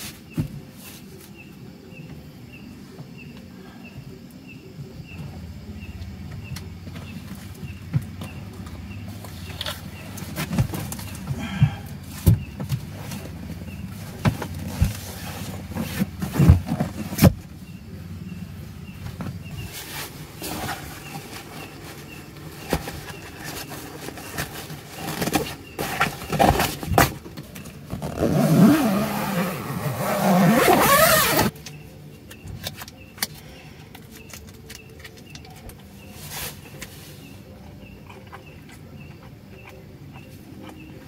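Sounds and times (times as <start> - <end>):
fabric rustling: 28.0 - 31.5.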